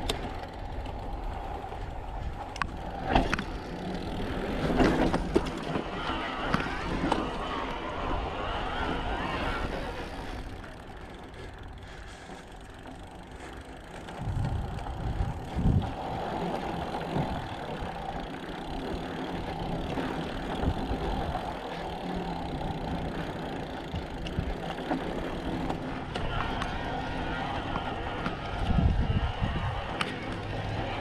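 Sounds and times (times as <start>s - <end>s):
bike rattle: 0.0s - 31.0s
wind rumbling on microphone: 13.9s - 18.2s, 23.9s - 31.0s.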